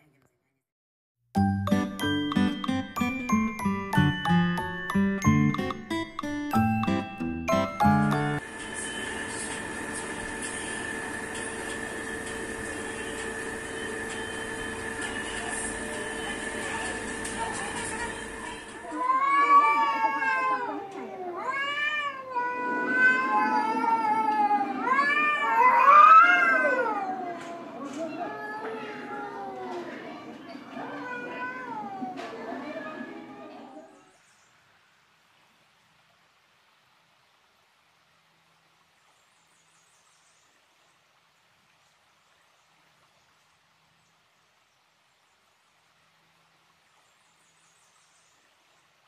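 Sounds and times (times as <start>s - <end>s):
cats yowling: 18.8s - 30.0s, 30.7s - 32.4s
faint background hiss: 33.6s - 49.0s.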